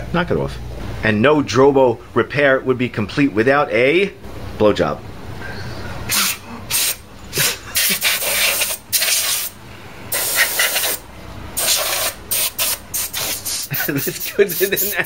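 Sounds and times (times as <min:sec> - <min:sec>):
compressed air hissing: 0:06.1 - 0:15.0.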